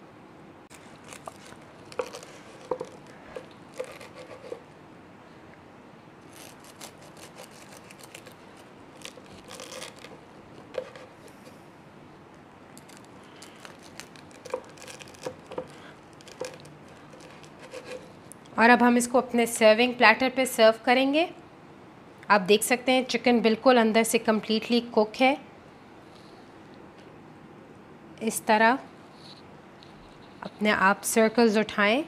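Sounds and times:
knife crunching through crust: 0:00.7 - 0:04.7, 0:06.2 - 0:11.6, 0:12.8 - 0:18.2.

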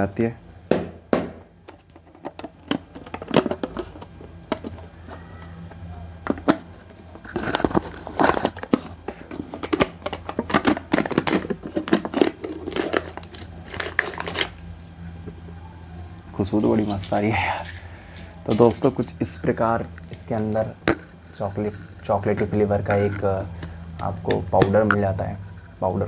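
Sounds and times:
foil seal crinkling and tearing: 0:07.2 - 0:14.6.

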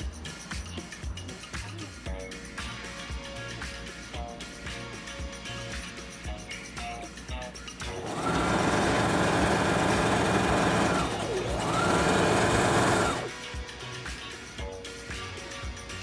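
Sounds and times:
sewing machine stitching: 0:07.9 - 0:13.3.

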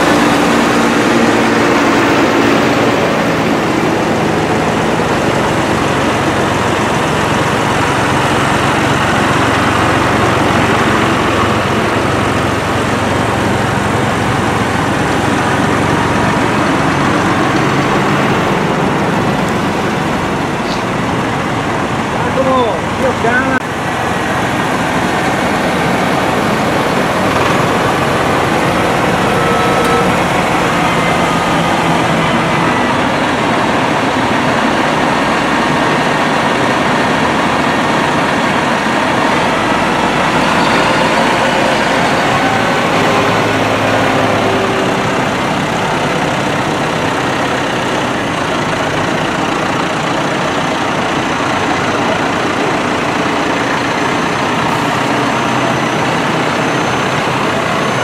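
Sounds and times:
tractor diesel engines driving past: 0:00.0 - 0:58.0.

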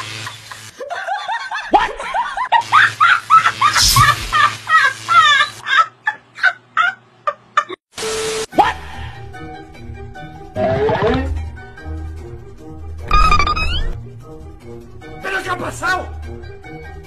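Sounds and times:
high-pitched cackling laughter: 0:00.1 - 0:07.8
short hiss: 0:03.8 - 0:04.5.

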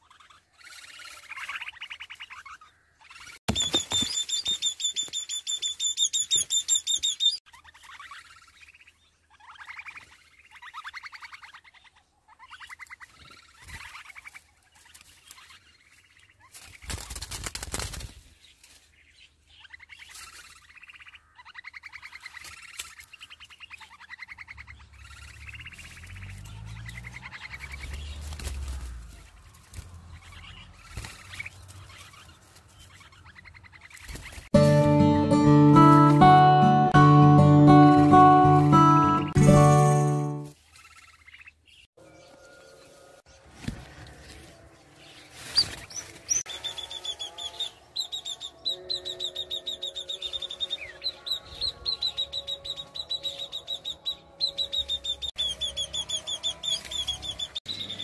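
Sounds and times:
baby birds chirping: 0:00.0 - 0:18.2, 0:19.5 - 0:34.6, 0:45.0 - 0:58.0.

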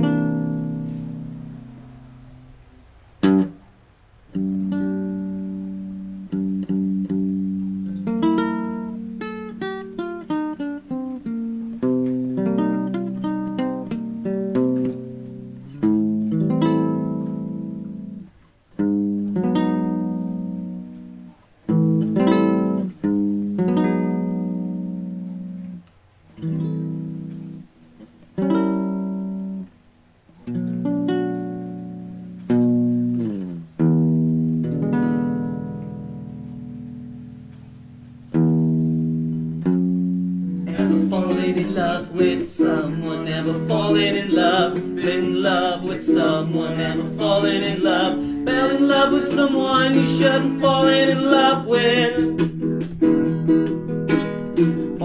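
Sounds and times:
acoustic guitar: 0:00.0 - 0:55.0
voices singing: 0:40.7 - 0:52.4.

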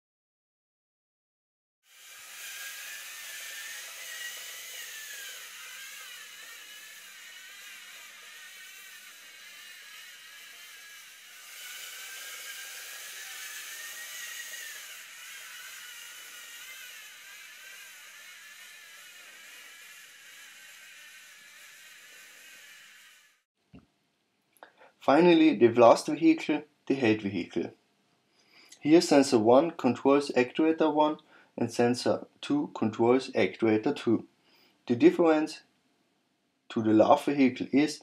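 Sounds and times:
robot motors whirring: 0:01.9 - 0:23.4.

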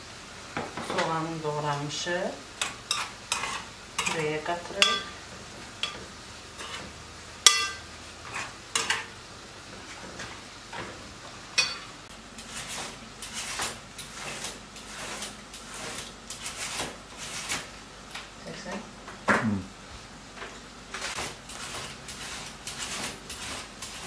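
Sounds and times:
metal spoon scraping bowl: 0:02.9 - 0:05.1, 0:06.6 - 0:06.9, 0:07.5 - 0:09.1, 0:21.0 - 0:24.0
shredder cutting cabbage: 0:12.4 - 0:17.7, 0:20.9 - 0:24.0.

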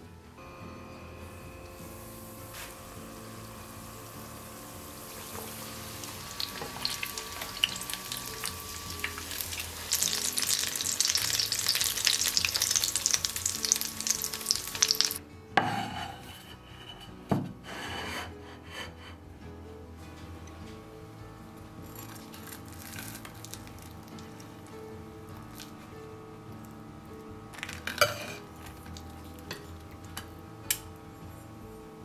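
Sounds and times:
food deep-frying in oil: 0:01.8 - 0:15.2, 0:21.8 - 0:24.8.

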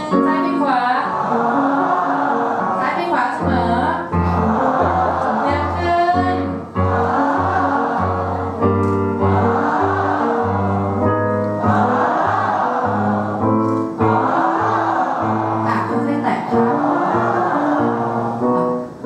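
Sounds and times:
piano: 0:00.0 - 0:19.0
group singing vocal scale: 0:04.3 - 0:18.8.

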